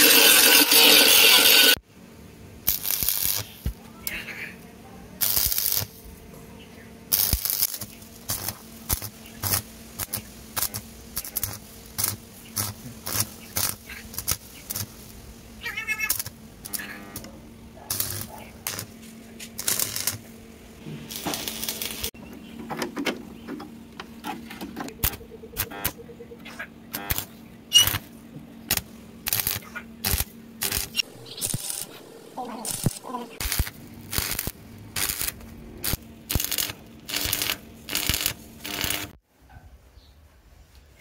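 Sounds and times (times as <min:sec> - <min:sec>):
welding arc crackling and hissing: 0:00.0 - 0:01.8, 0:02.6 - 0:04.2, 0:05.2 - 0:06.1, 0:07.1 - 0:17.3, 0:17.9 - 0:22.2, 0:26.9 - 0:39.2
steady low hum: 0:16.2 - 0:39.2.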